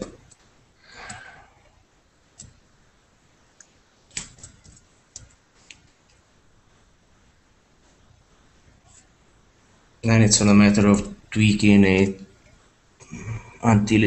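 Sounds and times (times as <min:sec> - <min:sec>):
soft breathy noise: 0:00.7 - 0:02.0, 0:12.5 - 0:13.8
mouse and keyboard clicks: 0:02.4 - 0:02.6, 0:03.6 - 0:06.2.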